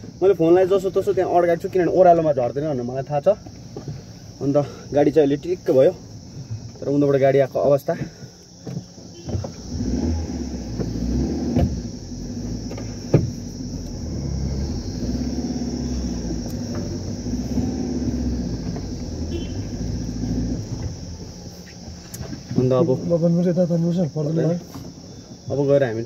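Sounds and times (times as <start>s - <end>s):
car engine and road rumble: 0.0s - 26.0s
faint insect chorus: 0.0s - 26.0s
sharp knocks: 12.8s - 13.4s.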